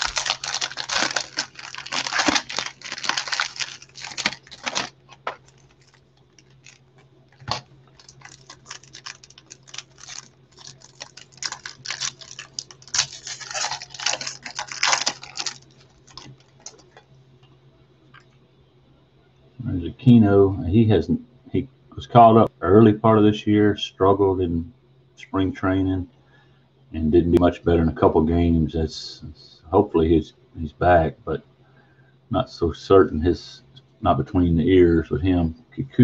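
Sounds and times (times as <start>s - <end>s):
cards rustling: 0.0s - 17.0s
foil wrapper crinkling and tearing: 0.0s - 17.0s.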